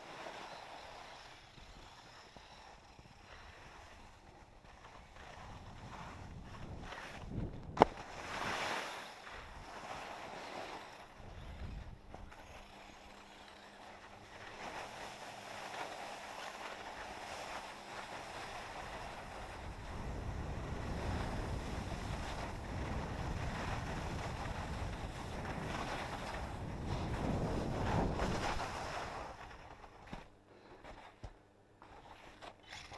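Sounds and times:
skis sliding over snow: 0.0s - 31.2s, 31.8s - 32.9s
wind buffeting microphone: 5.1s - 8.6s, 11.2s - 12.4s, 18.4s - 29.7s.

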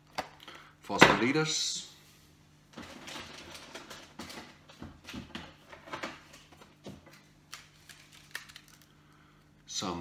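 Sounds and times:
plastic packets rustling: 2.8s - 9.3s.

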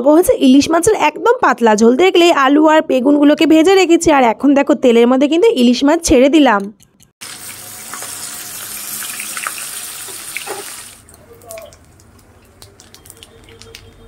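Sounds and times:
fish frying in hot oil: 7.2s - 14.0s
oil crackling and popping: 7.2s - 14.0s.

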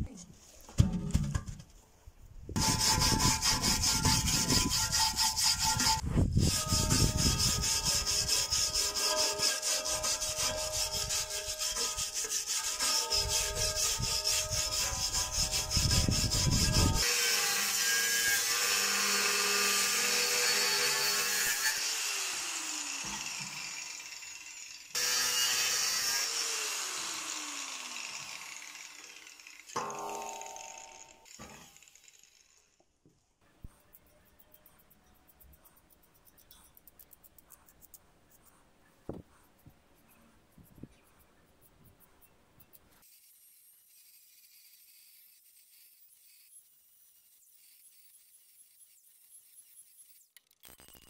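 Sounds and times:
wire brush scrubbing sheet metal: 2.6s - 23.8s, 25.0s - 32.0s.

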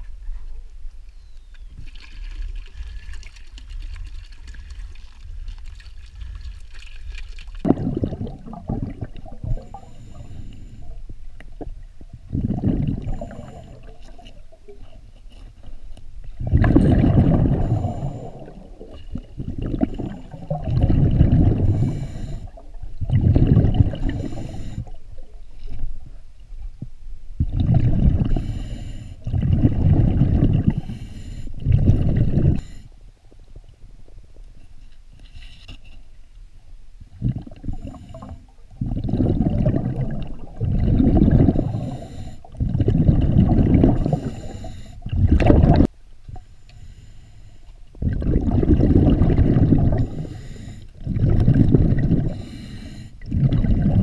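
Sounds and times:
scuba exhale bubbles gurgling: 2.0s - 15.0s, 16.4s - 25.5s, 27.4s - 32.9s, 37.1s - 45.9s, 48.0s - 54.0s
regulator inhalation hiss: 41.6s - 42.5s, 44.1s - 45.0s, 50.0s - 50.9s, 52.3s - 53.2s.

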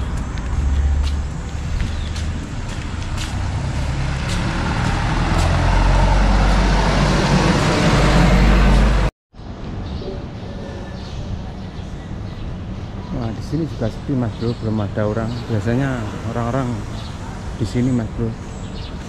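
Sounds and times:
bus engine and tyre rumble: 0.0s - 9.6s.

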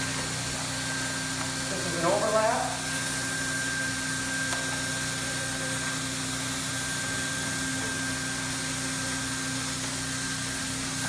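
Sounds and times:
hot-air blower hiss and whine: 0.0s - 11.0s.

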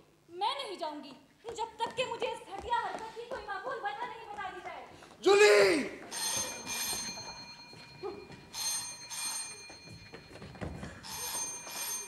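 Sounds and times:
telephone ringing: 6.1s - 12.0s.

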